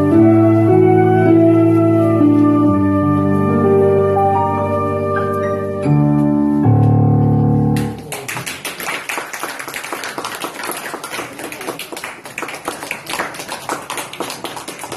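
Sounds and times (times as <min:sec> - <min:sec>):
flute ensemble chord: 0:00.0 - 0:06.6
audience applause: 0:07.8 - 0:14.9.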